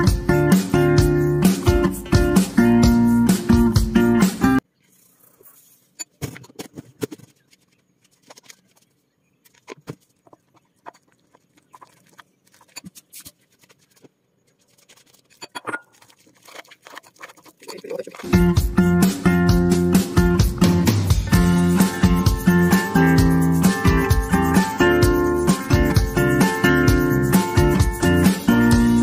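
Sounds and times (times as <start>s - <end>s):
spoon scraping ceramic bowl: 9.6s - 18.3s.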